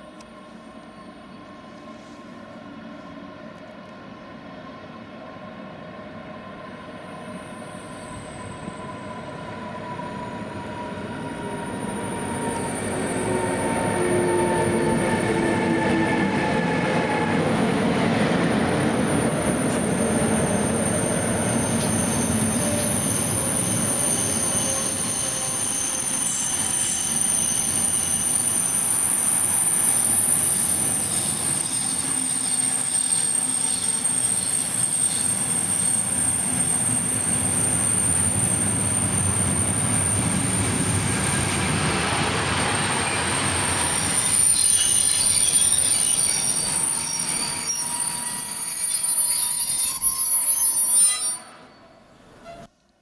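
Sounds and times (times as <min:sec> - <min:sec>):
high-pitched wheel squeal: 0:19.0 - 0:40.6, 0:42.8 - 0:52.7.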